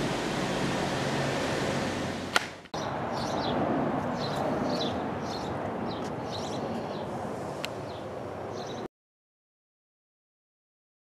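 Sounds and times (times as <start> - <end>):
outdoor background noise: 0.0 - 8.9
sharp click: 2.3 - 2.6
small birds chirping: 2.8 - 8.9.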